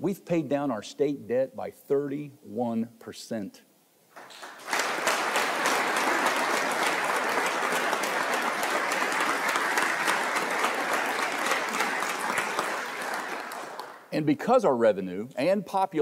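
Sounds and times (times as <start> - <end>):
audience applauding: 4.2 - 14.1.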